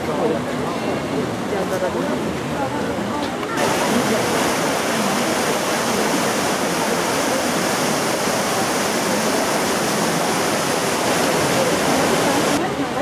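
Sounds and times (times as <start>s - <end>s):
river rushing over rocks: 3.6s - 12.6s.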